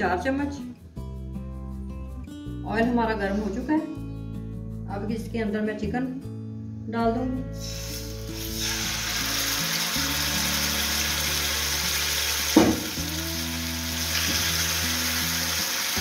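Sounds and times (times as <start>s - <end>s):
chicken sizzling in hot oil: 7.6s - 16.0s
meat thumping into pan: 12.5s - 13.0s.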